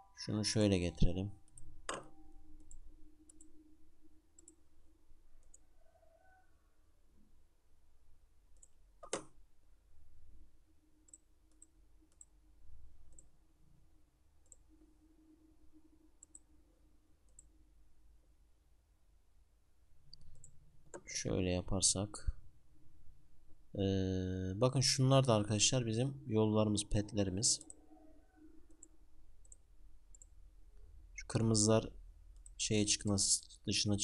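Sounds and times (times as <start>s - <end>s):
computer mouse clicks: 1.5s - 3.5s, 8.6s - 9.4s, 13.1s - 13.3s, 16.2s - 16.5s, 20.1s - 21.1s, 28.7s - 30.4s.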